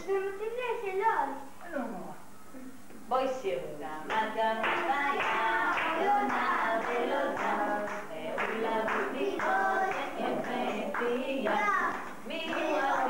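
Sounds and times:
children and woman singing: 0:04.1 - 0:13.0
hand clapping: 0:04.1 - 0:13.0.

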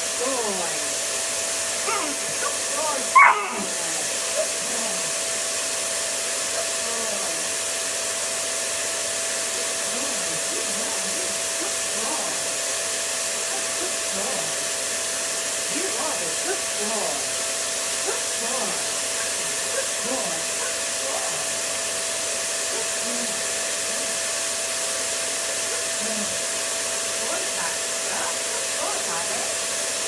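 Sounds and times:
vacuum cleaner running: 0:00.0 - 0:30.0
puppy barking: 0:01.8 - 0:05.2, 0:18.0 - 0:21.6, 0:22.7 - 0:24.2, 0:25.5 - 0:26.0, 0:27.4 - 0:29.5.

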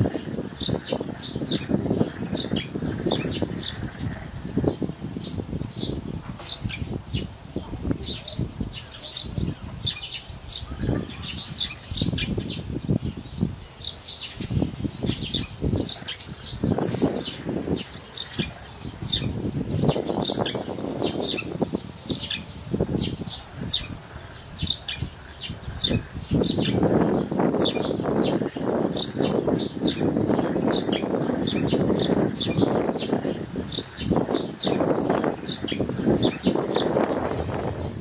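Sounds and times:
small birds chirping: 0:00.0 - 0:38.0
low uneven rumble: 0:36.9 - 0:38.0.

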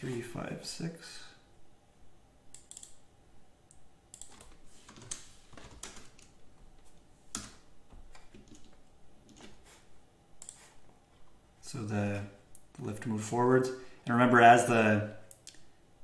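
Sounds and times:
computer keyboard key clicks: 0:02.6 - 0:03.0.

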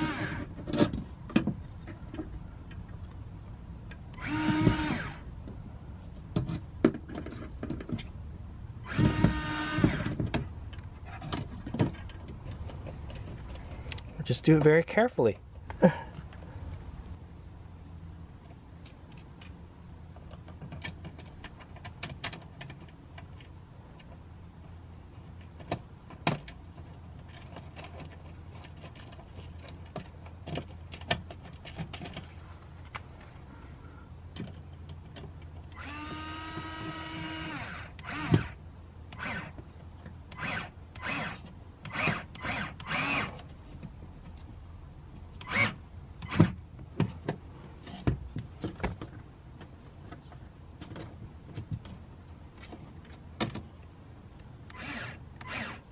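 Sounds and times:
cordless drill driving screw: 0:04.2 - 0:05.2, 0:35.8 - 0:38.6, 0:39.2 - 0:39.6, 0:40.3 - 0:43.3, 0:45.4 - 0:46.5, 0:54.7 - 0:55.9.

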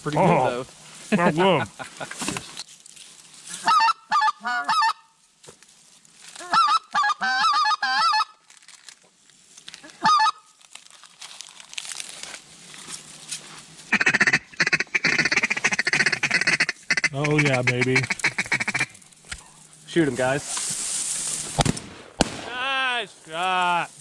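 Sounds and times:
goose honking: 0:13.9 - 0:19.0.

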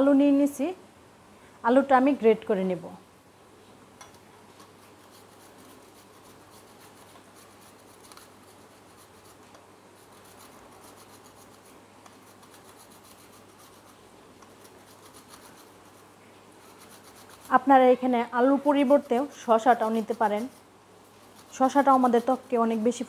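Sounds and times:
potato grating on metal grater: 0:04.6 - 0:23.0.

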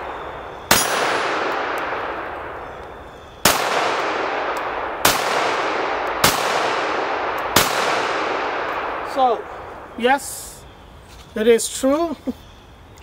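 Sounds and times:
pistol shots echoing: 0:00.0 - 0:10.0.

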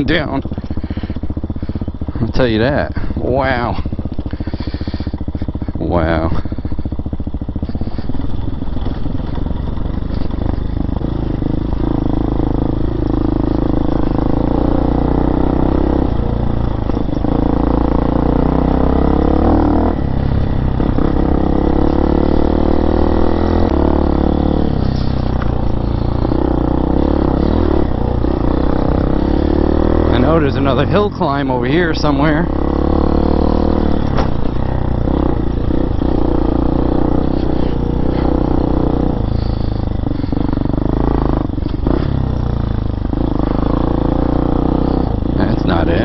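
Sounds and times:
dirt bike engine revving: 0:00.0 - 0:46.0
bike clattering over bumps: 0:33.8 - 0:35.0.

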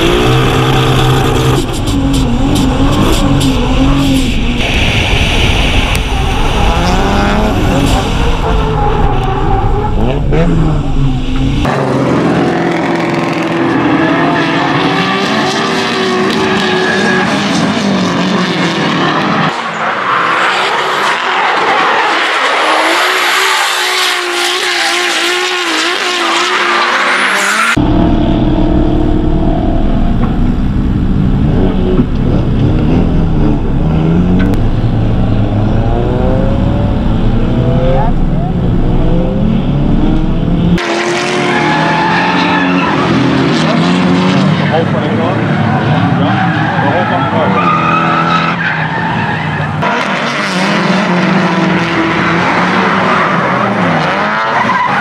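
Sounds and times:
tires squealing: 0:00.0 - 0:28.0, 0:40.8 - 0:55.0
car engines revving high: 0:00.0 - 0:55.0.

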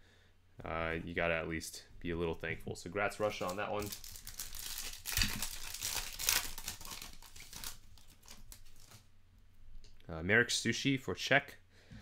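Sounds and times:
foil wrapper tearing and crinkling: 0:03.2 - 0:09.0.

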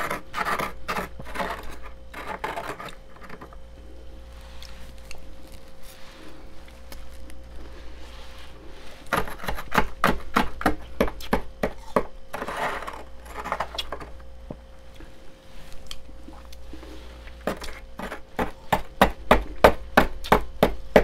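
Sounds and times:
metal spoon scraping frost: 0:00.0 - 0:03.6, 0:11.8 - 0:14.2
faint steady hum: 0:00.0 - 0:21.0.

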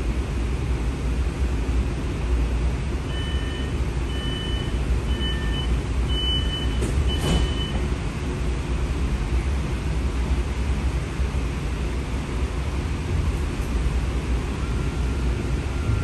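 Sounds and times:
low interior hum: 0:00.0 - 0:16.0
two-tone warning beeps: 0:03.1 - 0:07.8.

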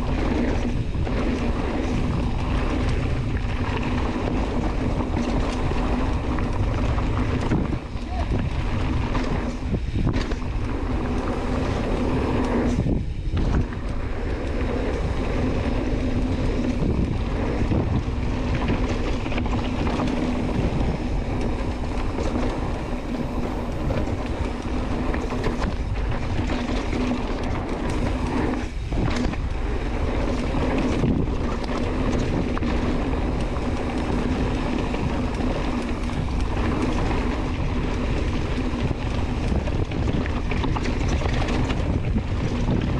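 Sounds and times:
bike tyre rumble on dirt: 0:00.0 - 0:42.9
wind buffeting microphone: 0:00.0 - 0:42.9.

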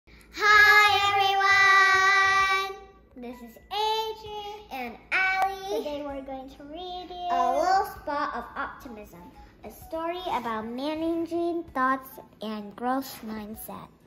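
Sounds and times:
girl singing: 0:00.4 - 0:02.9.

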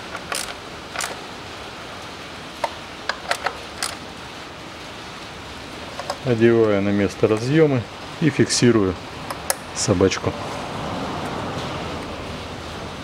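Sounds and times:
ratchet clicking: 0:00.0 - 0:01.2, 0:02.6 - 0:04.0
steady hiss: 0:00.0 - 0:10.6.

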